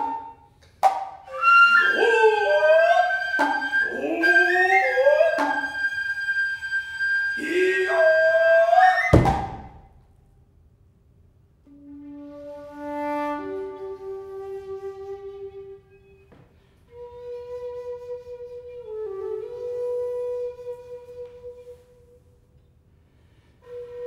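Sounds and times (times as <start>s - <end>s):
flute high piercing note: 1.3s - 9.2s, 11.7s - 22.3s
hand drums striking: 3.4s - 5.8s.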